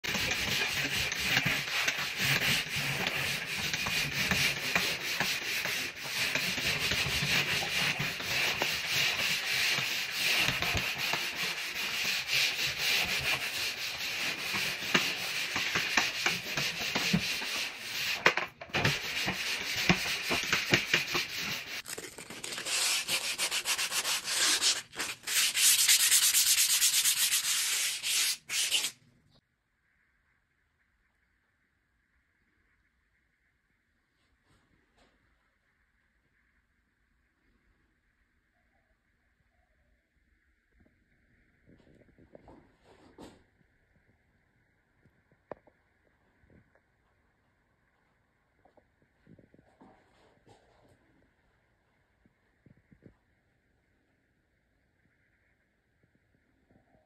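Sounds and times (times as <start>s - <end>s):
hand sanding a wall: 0.0s - 21.8s, 22.4s - 28.9s.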